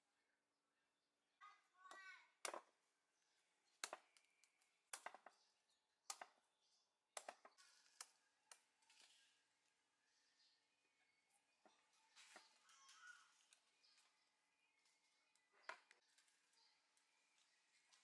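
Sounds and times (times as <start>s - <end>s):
cleaver chopping coconut husk: 3.8s - 5.4s, 6.1s - 6.4s, 7.2s - 8.6s.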